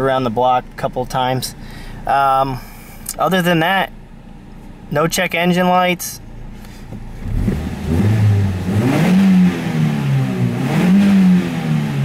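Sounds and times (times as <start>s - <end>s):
car engine revving: 6.3s - 12.0s.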